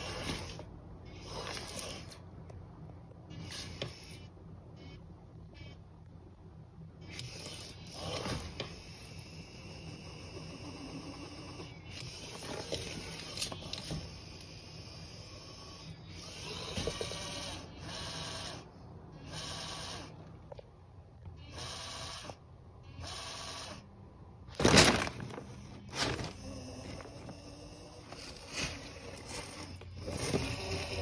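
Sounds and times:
plastic bag crinkling: 24.5 - 27.4, 28.0 - 30.6.

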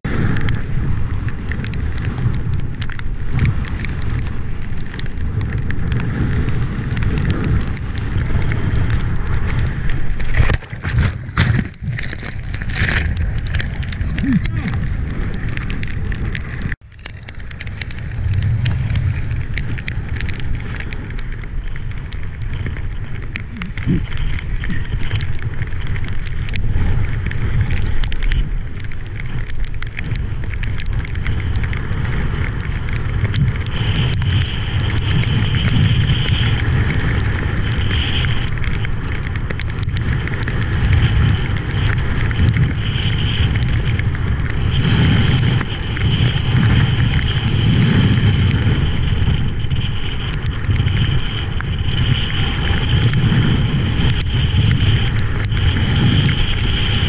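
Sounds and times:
wind buffeting microphone: 0.0 - 57.0
sea water rushing and splashing: 8.0 - 32.0.

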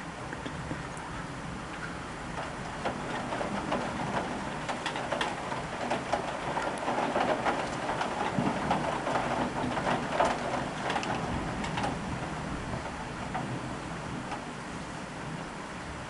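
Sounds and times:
heavy rain pattering: 0.0 - 16.0
raindrop taps: 1.7 - 14.5.

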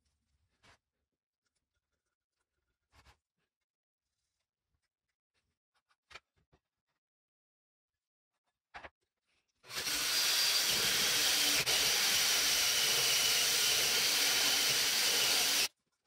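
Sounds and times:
power drill cutting wood: 9.7 - 15.7.

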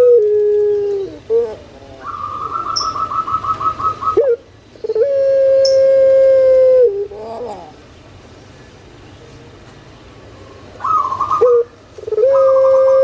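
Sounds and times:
dove cooing: 0.0 - 7.8, 10.6 - 13.0.

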